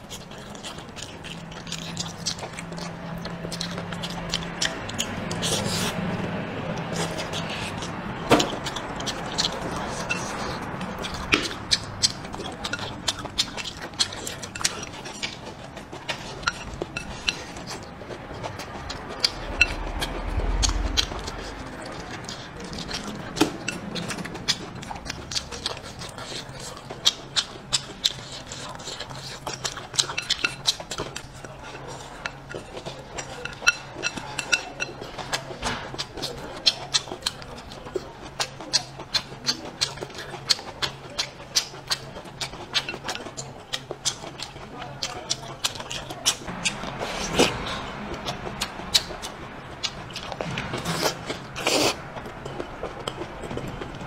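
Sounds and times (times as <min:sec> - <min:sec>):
chewing and mouth sounds: 0:00.0 - 0:54.0
chopsticks clinking on ceramic bowl: 0:12.1 - 0:17.8, 0:31.9 - 0:35.3.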